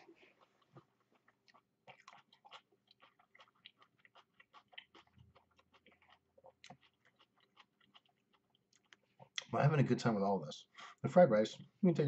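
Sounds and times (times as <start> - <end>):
person chewing food: 0.0 - 9.5.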